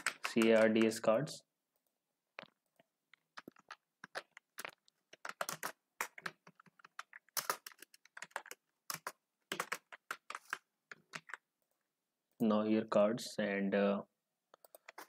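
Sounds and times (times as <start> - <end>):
typing on a computer keyboard: 0.0 - 1.1, 3.4 - 11.4.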